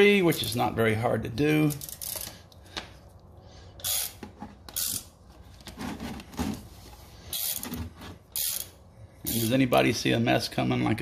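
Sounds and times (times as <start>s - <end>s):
socket ratchet clicking: 3.8s - 5.1s, 8.3s - 8.7s.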